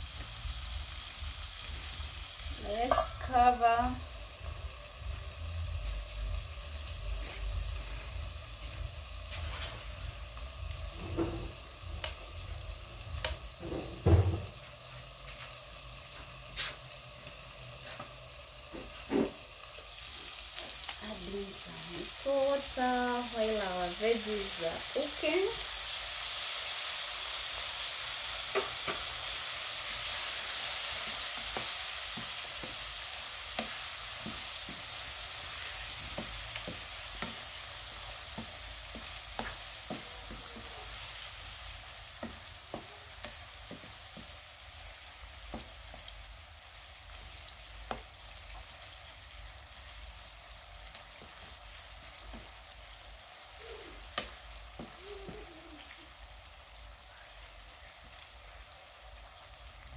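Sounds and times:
vegetables sizzling in a frying pan: 0:00.0 - 0:59.9
wooden spoon scraping a pan: 0:02.6 - 0:03.6, 0:07.2 - 0:09.9, 0:31.0 - 0:44.4.

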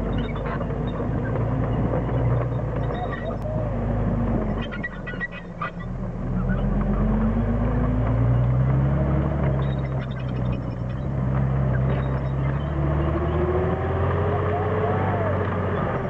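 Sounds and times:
tank tracks on gravel: 0:00.0 - 0:05.8
tank engine accelerating: 0:00.0 - 0:16.0.

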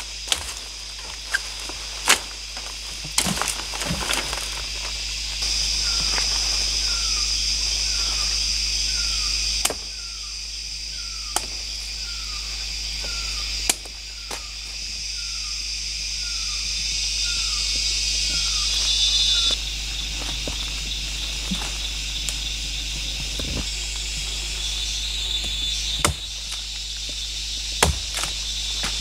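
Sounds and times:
forest insects hissing: 0:00.0 - 0:29.0
blade chopping wood: 0:03.0 - 0:04.6, 0:26.0 - 0:26.4, 0:27.8 - 0:29.0.

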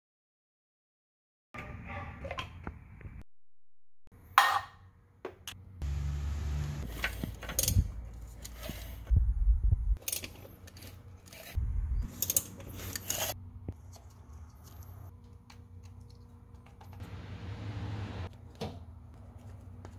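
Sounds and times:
metal parts and tools clinking: 0:06.9 - 0:08.8, 0:10.0 - 0:15.1.

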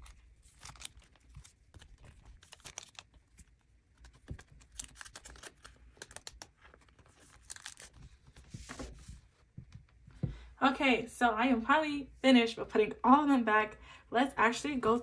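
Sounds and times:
plastic sleeves rustling: 0:00.0 - 0:10.4.

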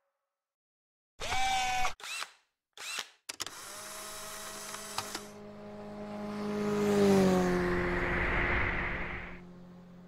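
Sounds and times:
rising pitch sweeps: 0:05.4 - 0:10.0.

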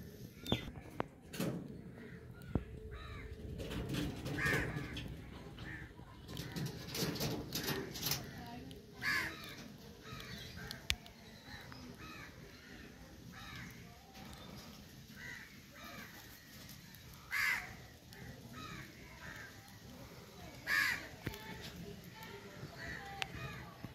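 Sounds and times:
crows cawing: 0:01.9 - 0:03.4, 0:04.3 - 0:07.0, 0:07.6 - 0:10.9, 0:11.5 - 0:14.5, 0:15.1 - 0:21.2, 0:22.7 - 0:23.8.

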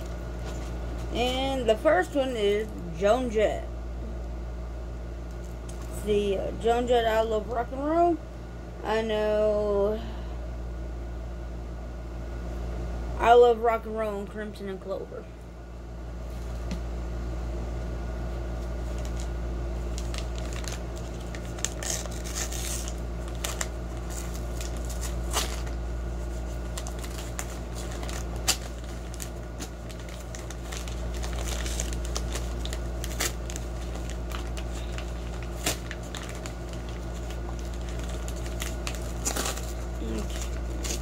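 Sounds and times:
steady low hum: 0:00.0 - 0:41.0
wrapping crinkling: 0:18.6 - 0:41.0.

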